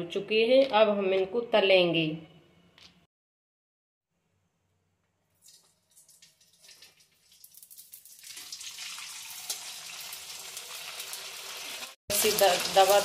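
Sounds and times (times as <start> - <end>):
papad sizzling in hot oil: 5.4 - 13.0.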